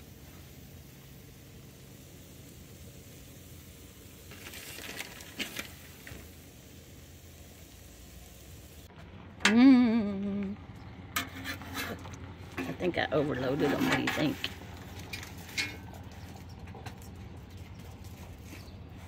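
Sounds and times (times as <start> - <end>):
food sizzling on a griddle: 0.0 - 8.9
cheese rustling: 4.2 - 6.4
person humming: 9.5 - 10.6.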